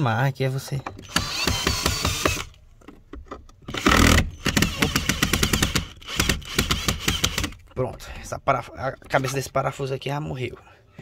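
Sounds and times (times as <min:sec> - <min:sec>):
drill bit clicking and chattering: 0:00.9 - 0:02.6, 0:03.7 - 0:07.8
drill motor whirring: 0:00.9 - 0:02.6, 0:03.7 - 0:07.6.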